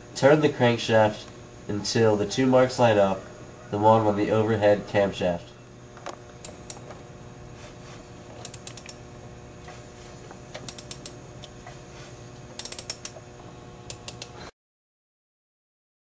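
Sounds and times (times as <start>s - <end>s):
faint steady hum: 0.0s - 14.5s
socket ratchet clicking: 8.4s - 9.0s, 10.6s - 11.2s, 12.6s - 13.2s.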